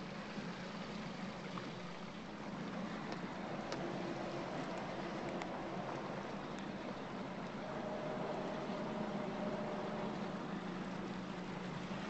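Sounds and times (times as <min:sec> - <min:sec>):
boat motor humming: 0:00.0 - 0:12.0
hiss of water and air: 0:02.6 - 0:12.0.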